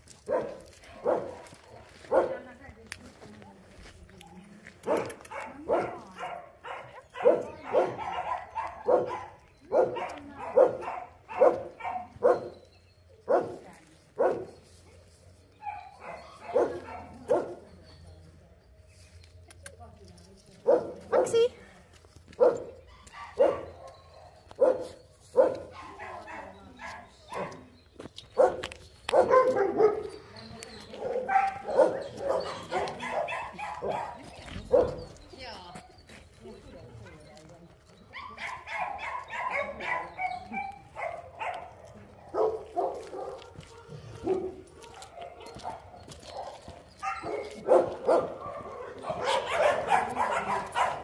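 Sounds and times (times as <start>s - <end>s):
dog barking: 0.3s - 2.4s, 4.8s - 12.6s, 13.3s - 13.6s, 14.2s - 14.6s, 15.6s - 17.6s, 20.6s - 21.5s, 22.4s - 27.6s, 28.4s - 30.2s, 30.9s - 35.0s, 38.2s - 51.0s.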